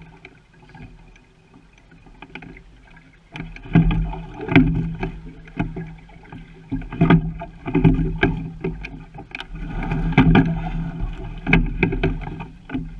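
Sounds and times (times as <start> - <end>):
water rushing along hull: 0.0 - 12.9
oars knocking in oarlocks: 3.3 - 12.9.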